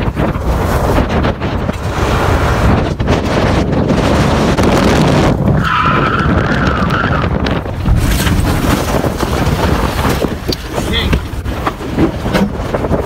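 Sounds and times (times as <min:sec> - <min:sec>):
car road noise: 0:00.0 - 0:13.0
wind buffeting microphone: 0:00.0 - 0:13.0.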